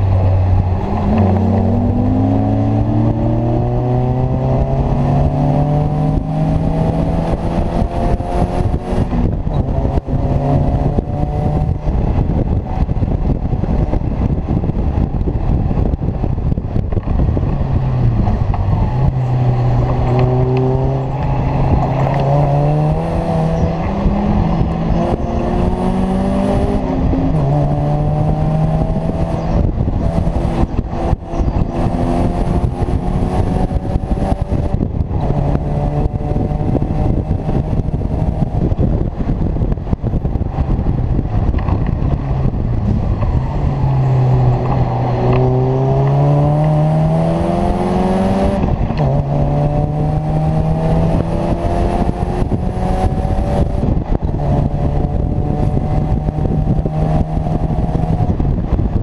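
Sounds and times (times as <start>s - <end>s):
sports car engine: 0.0s - 59.0s
wind buffeting: 0.0s - 59.0s.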